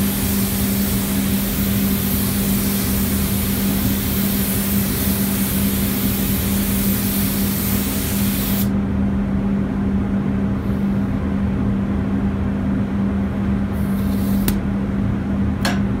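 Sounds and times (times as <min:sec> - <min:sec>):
spray gun hissing: 0:00.0 - 0:08.7
steady low hum: 0:00.0 - 0:16.0.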